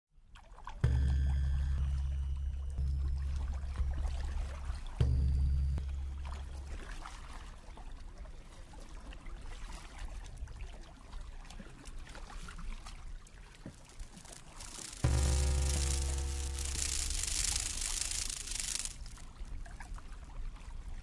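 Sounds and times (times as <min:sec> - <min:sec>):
water splashes and drips: 0:00.2 - 0:21.0
low electronic drone: 0:13.8 - 0:19.2.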